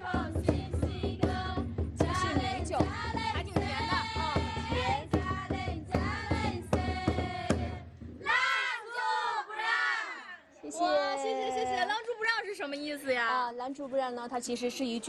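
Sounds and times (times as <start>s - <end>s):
steady drum beat: 0.0s - 8.5s
women singing together: 0.0s - 10.5s.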